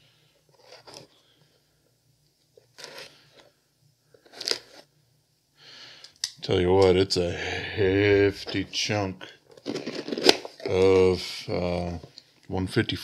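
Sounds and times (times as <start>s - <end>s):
packaging torn and crumpled: 4.2s - 4.8s.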